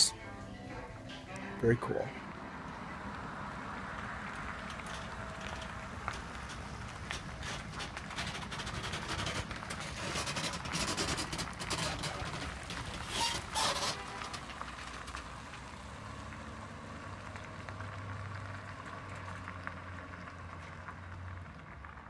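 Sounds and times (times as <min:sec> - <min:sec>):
vehicle driving drone: 0:00.0 - 0:13.1, 0:14.1 - 0:22.0.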